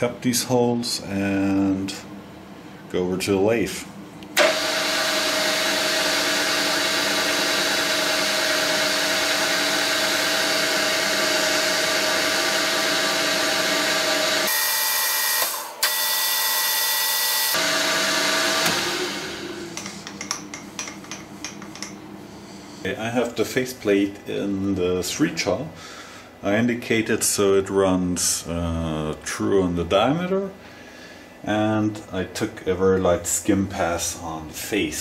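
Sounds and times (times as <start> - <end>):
milling machine spindle running: 4.4 - 15.9.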